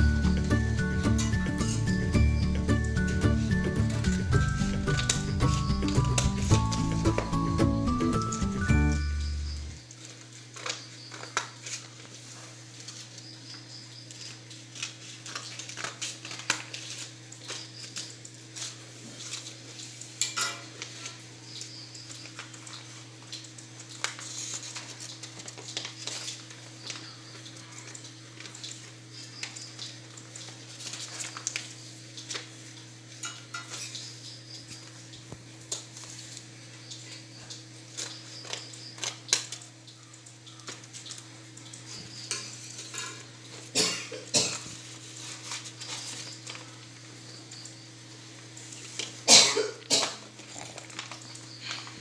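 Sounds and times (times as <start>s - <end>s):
steady low hum: 0.0s - 9.8s
wrapping paper rustling: 0.0s - 34.0s, 34.6s - 52.0s.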